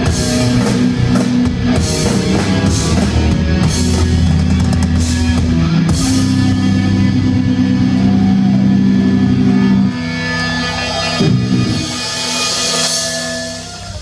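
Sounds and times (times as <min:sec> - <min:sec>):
death metal band playing live: 0:00.0 - 0:14.0.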